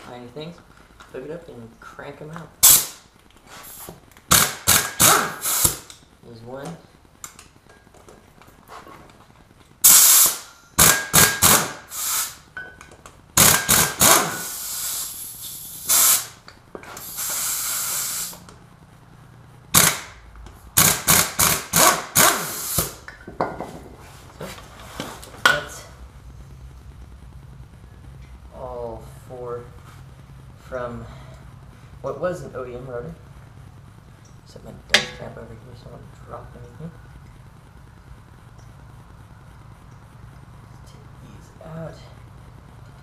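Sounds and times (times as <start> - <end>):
pneumatic impact wrench bursts: 2.6 - 3.0, 3.6 - 5.9, 9.8 - 12.5, 13.4 - 18.4, 19.7 - 20.2, 20.8 - 23.1.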